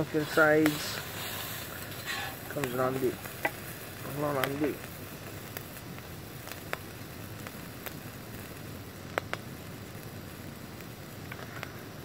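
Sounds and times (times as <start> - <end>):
bacon sizzling in a frying pan: 0.0 - 12.0.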